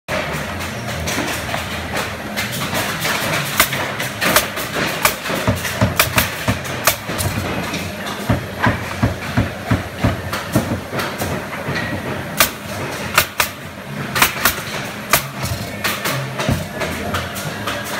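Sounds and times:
workshop din: 0.1s - 17.9s
nail gun firing: 3.0s - 7.3s, 12.4s - 13.6s, 14.2s - 16.6s.

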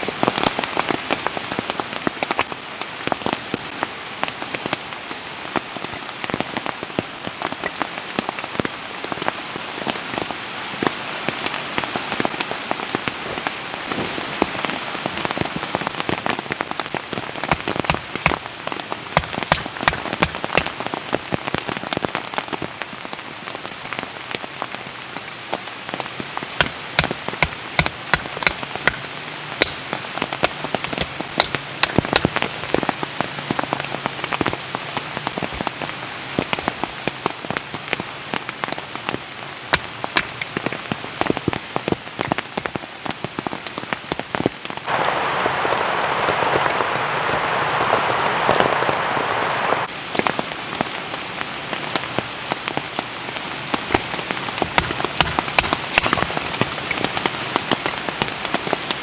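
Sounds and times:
rain drops tapping: 0.0s - 59.0s
dense rushing hiss: 44.9s - 49.9s.

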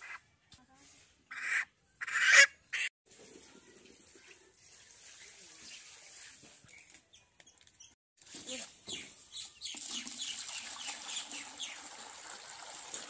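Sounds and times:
hot water pouring into steel bucket: 3.1s - 6.4s, 9.6s - 13.0s.

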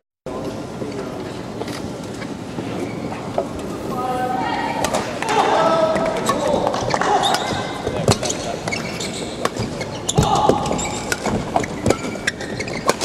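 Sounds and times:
rackets hitting shuttlecocks: 4.8s - 13.0s.

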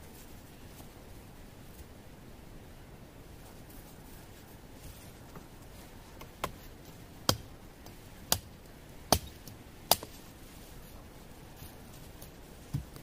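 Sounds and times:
blade chopping wooden pole: 9.1s - 10.1s.

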